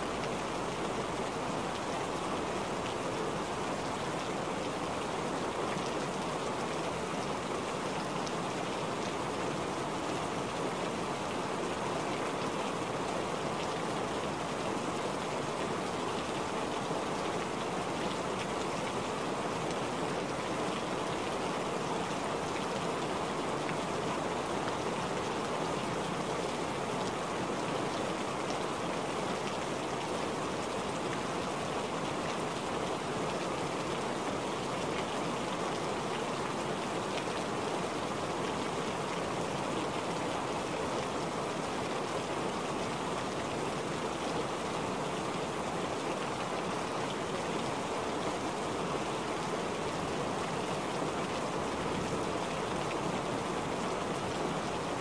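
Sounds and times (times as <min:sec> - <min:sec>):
steady rain hiss: 0:00.0 - 0:55.0.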